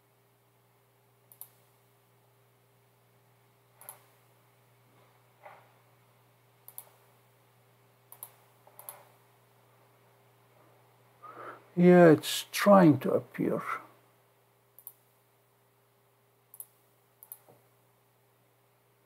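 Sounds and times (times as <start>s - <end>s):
computer mouse clicks: 1.3s - 1.7s, 3.8s - 4.2s, 6.6s - 7.0s, 8.1s - 9.1s, 14.8s - 15.0s, 16.5s - 17.6s.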